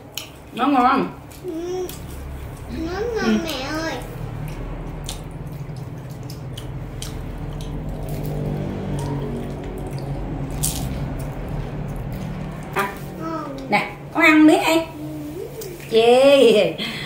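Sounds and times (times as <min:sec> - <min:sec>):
steady low hum: 0:00.0 - 0:17.0
biting and chewing crisp food: 0:01.2 - 0:13.2.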